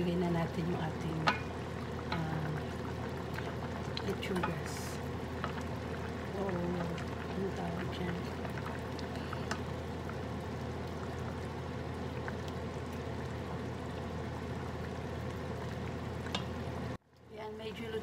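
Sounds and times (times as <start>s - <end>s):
broth bubbling while stirred: 0.0s - 17.4s.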